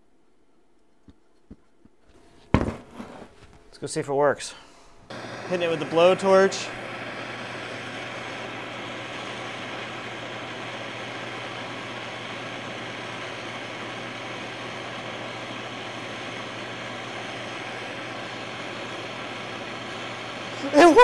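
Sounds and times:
blowtorch flame hissing: 5.1 - 21.0.

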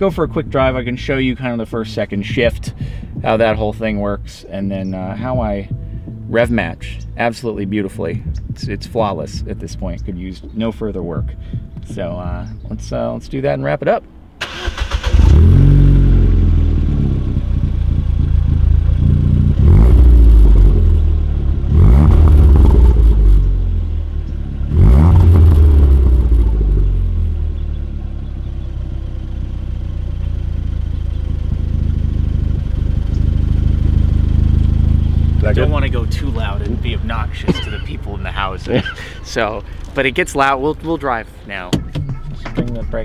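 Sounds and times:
car engine revving and idling: 14.4 - 41.6.

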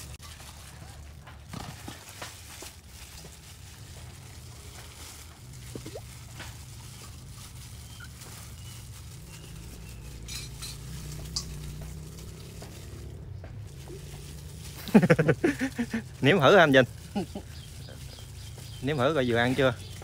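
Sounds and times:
meat being mixed in bowl: 2.0 - 20.0
low steady rumble: 3.6 - 18.6.

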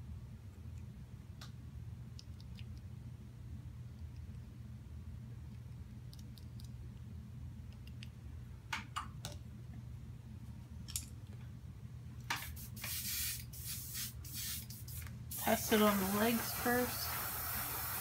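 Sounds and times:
steady low hum: 0.0 - 18.0
airbrush spray hiss: 12.4 - 18.0.

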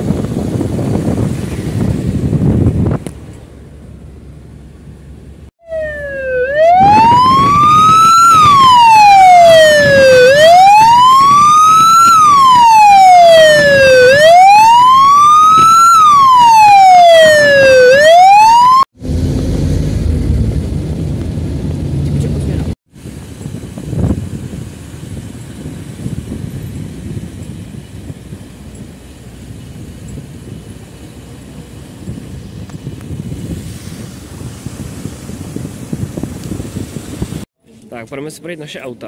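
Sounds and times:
car and wind noise: 0.0 - 39.0
vehicle siren wailing: 5.6 - 18.9.

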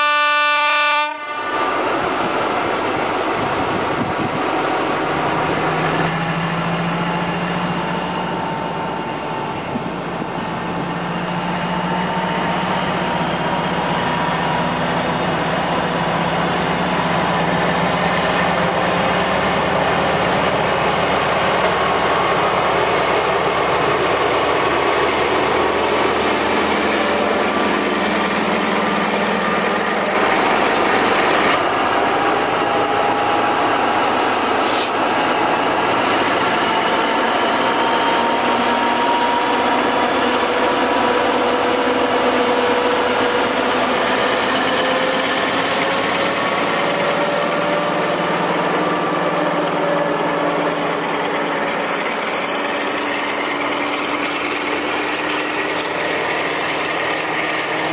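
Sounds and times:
diesel locomotive engine running: 1.0 - 57.9
train coaches rolling on rails: 1.1 - 57.9.

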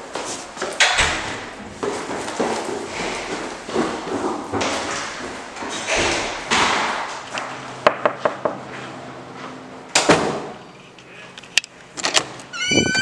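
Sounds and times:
footsteps going down stairs: 0.0 - 10.6
door clunk: 0.8 - 1.8.

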